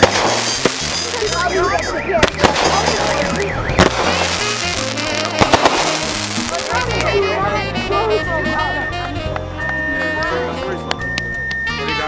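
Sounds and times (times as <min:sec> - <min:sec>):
fireworks bangs: 0:00.0 - 0:07.2.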